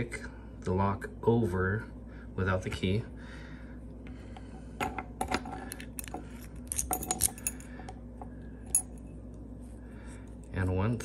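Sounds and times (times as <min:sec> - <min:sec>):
metal keys clicking: 0:05.7 - 0:07.7
keys jingling: 0:06.0 - 0:07.7.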